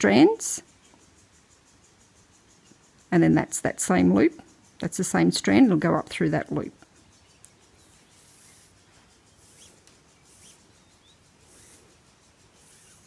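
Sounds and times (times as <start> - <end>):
cord swishing through fingers: 7.8 - 13.0.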